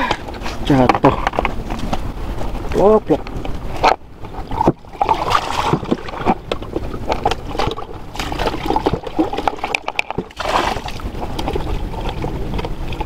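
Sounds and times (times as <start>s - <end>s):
water sloshing in bucket: 4.4s - 13.0s.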